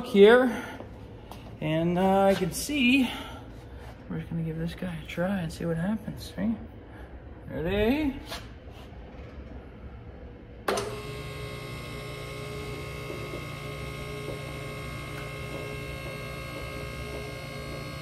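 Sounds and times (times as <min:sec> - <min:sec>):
hydraulic pump humming: 0:10.6 - 0:18.0.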